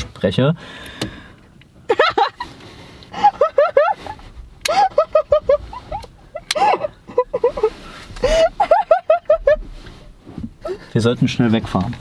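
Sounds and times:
person giggling: 3.2 - 9.7.

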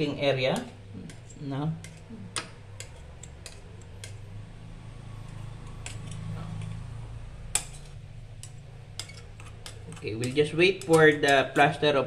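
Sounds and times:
steady low hum: 0.0 - 12.0
metal spatula scraping plaster: 7.7 - 11.7.

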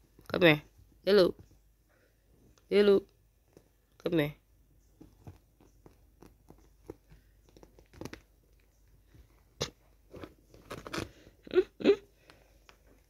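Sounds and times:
crunchy rustles: 4.8 - 11.5
kitten scratching on bedding: 5.0 - 11.1.

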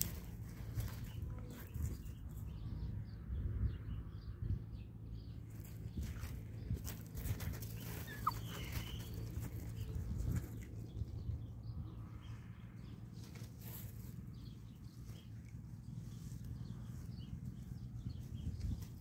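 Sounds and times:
paws crunching on gravel: 0.0 - 2.7, 5.5 - 11.2, 13.1 - 19.0
puppies scuffling: 5.5 - 11.5.

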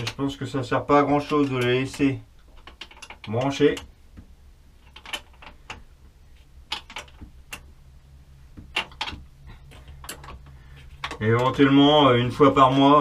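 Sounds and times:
steady low hum: 0.0 - 13.0
small metallic clicks and taps: 1.1 - 5.9, 6.7 - 7.7, 8.6 - 11.6.

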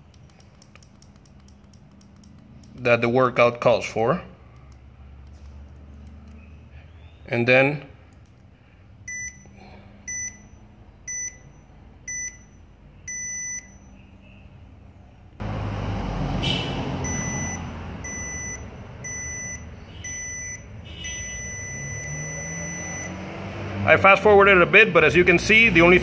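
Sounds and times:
long timer beep: 9.1 - 13.9, 17.0 - 23.2
interval timer short beeps: 9.1 - 14.0, 17.0 - 23.2.

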